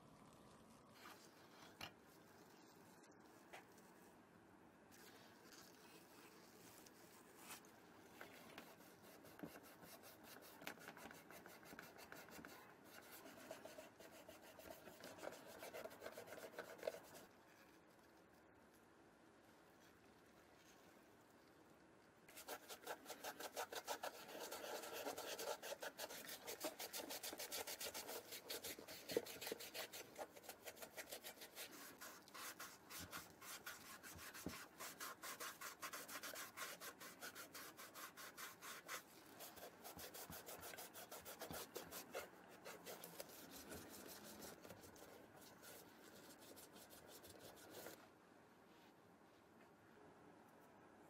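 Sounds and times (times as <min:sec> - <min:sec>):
brush scrubbing leather: 0:22.3 - 0:48.0.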